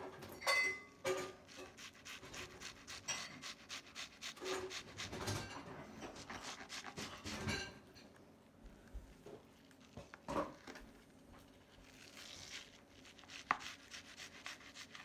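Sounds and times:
knife scraping fish skin: 1.1s - 7.6s, 11.8s - 15.0s.

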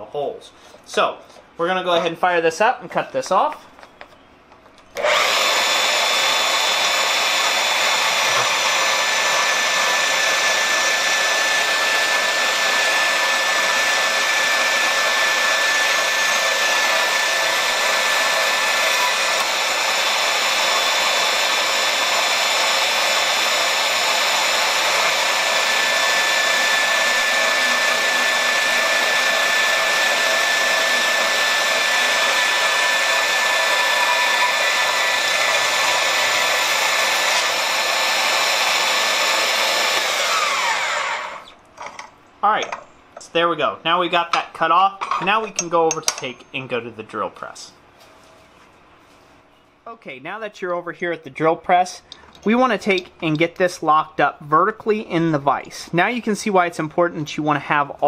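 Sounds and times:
bandsaw cutting steel: 5.0s - 41.6s.

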